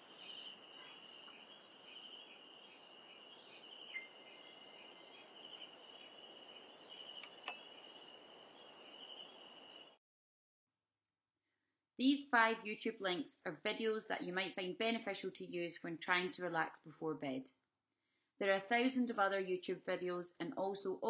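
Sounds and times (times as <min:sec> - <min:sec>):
crickets chirping: 0:00.0 - 0:10.0
soft chime: 0:04.0 - 0:04.5, 0:07.3 - 0:07.8.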